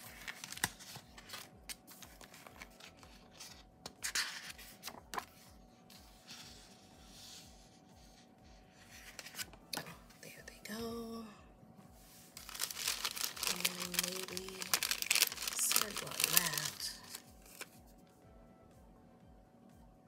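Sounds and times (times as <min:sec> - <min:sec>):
paper pages rustling and flapping: 0:00.0 - 0:05.4, 0:09.0 - 0:09.6, 0:12.4 - 0:17.8.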